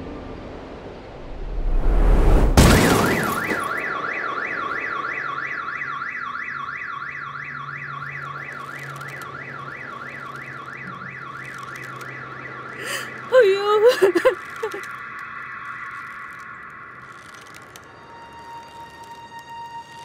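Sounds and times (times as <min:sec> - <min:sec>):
rushing swell: 0:00.1 - 0:02.6
heavy crash: 0:01.1 - 0:04.0
car alarm wailing: 0:02.7 - 0:18.9.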